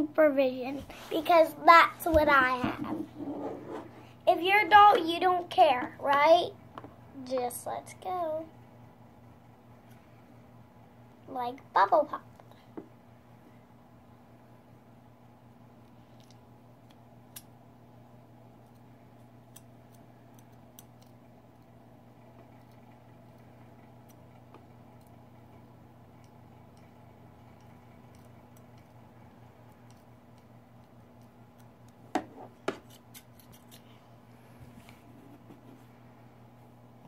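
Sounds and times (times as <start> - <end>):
electric fan humming: 0.0 - 37.0
scissors snipping hair: 19.5 - 21.2, 32.7 - 33.9.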